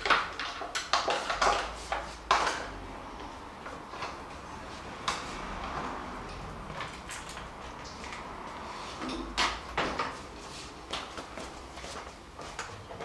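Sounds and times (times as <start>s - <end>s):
objects knocking and clacking: 0.0s - 2.8s.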